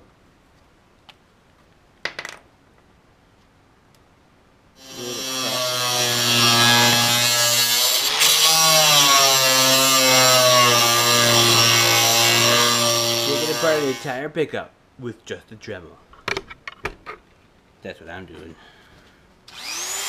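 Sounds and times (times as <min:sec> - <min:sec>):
angle grinder cutting sheet metal: 0:04.8 - 0:14.2, 0:19.5 - 0:20.0.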